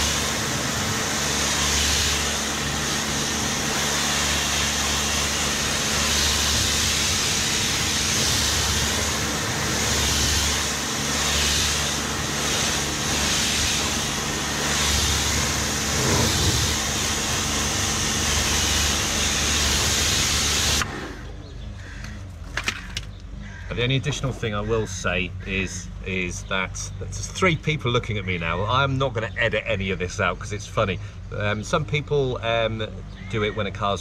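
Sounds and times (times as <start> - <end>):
water jet hissing: 0.0 - 21.4
pressure washer motor hum: 0.0 - 22.0.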